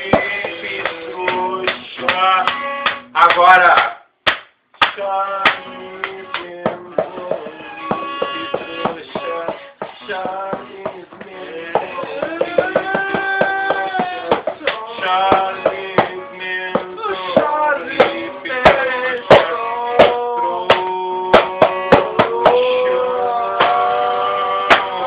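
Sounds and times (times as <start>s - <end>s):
sharp percussive hits: 16.8s - 22.6s, 24.7s - 25.0s.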